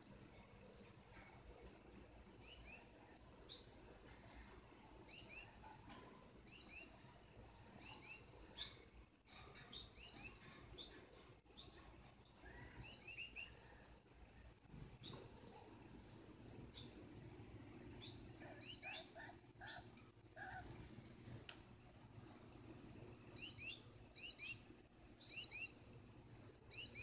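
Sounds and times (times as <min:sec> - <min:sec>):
finch double chirps: 0:02.4 - 0:02.9, 0:05.1 - 0:05.6, 0:06.5 - 0:08.8, 0:09.7 - 0:10.4, 0:18.0 - 0:19.1, 0:22.8 - 0:24.6, 0:26.7 - 0:27.0.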